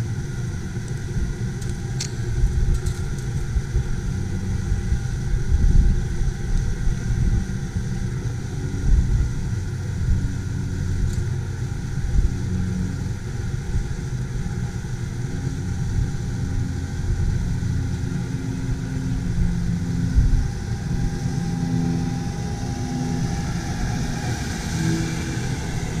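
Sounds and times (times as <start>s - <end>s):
uneven low rumble: 0.0s - 26.0s
lawn mower cutting grass: 15.2s - 26.0s.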